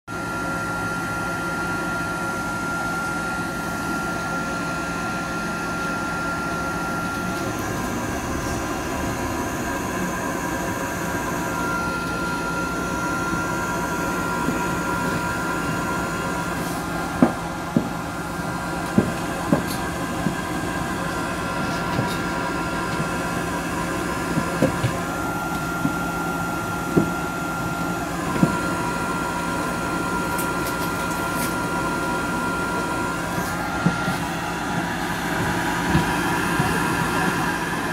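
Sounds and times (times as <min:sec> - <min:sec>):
vehicle running noise: 0:06.5 - 0:12.7.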